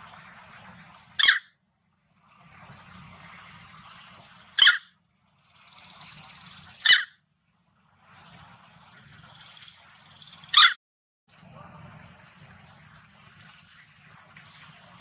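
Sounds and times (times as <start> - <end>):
high-pitched animal calls: 1.2 - 1.5, 4.6 - 4.9, 6.8 - 7.2, 10.5 - 10.8.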